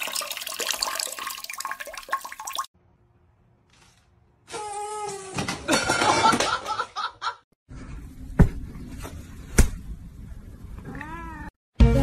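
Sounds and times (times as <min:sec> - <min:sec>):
laughter and commotion: 0:05.6 - 0:07.5
cat meowing: 0:10.8 - 0:11.6.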